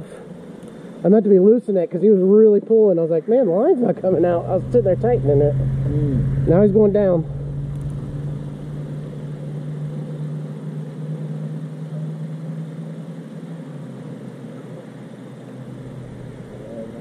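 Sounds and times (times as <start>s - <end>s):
low steady mechanical hum: 0.0s - 17.0s.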